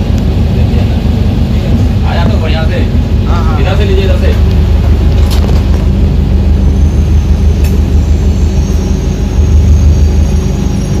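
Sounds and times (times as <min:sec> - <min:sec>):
diesel train engine droning: 0:00.0 - 0:11.0
faint high whine: 0:05.9 - 0:11.0.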